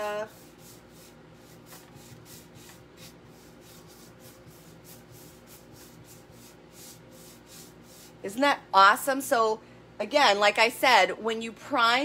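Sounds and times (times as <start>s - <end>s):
paintbrush strokes: 0.0s - 8.3s.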